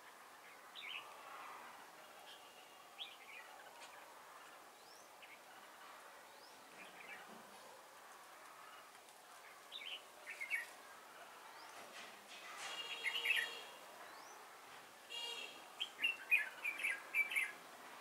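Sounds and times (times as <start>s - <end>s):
birds chirping: 0.0s - 1.2s, 8.6s - 12.0s, 12.6s - 17.7s.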